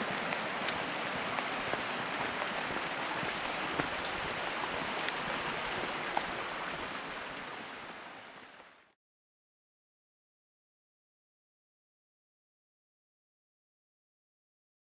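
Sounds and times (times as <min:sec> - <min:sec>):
faint clicks: 0:00.0 - 0:06.7
stream water running: 0:00.0 - 0:09.0.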